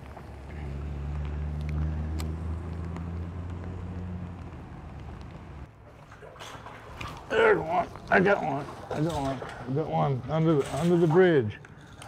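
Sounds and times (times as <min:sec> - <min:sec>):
light rain on water: 0:00.8 - 0:10.4.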